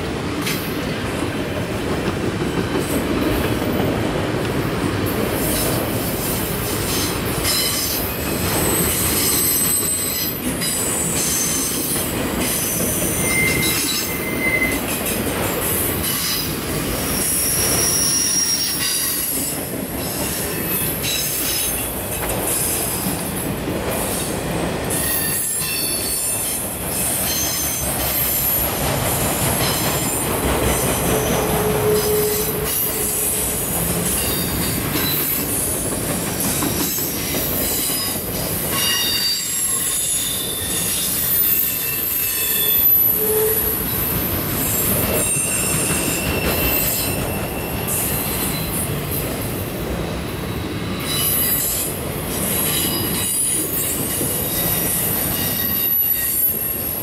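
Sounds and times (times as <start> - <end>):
freight train wheels rumbling on rails: 0.0 - 57.0
high-pitched wheel squeals: 13.0 - 14.8, 17.2 - 19.2, 31.2 - 33.4, 38.8 - 43.8, 45.2 - 48.8.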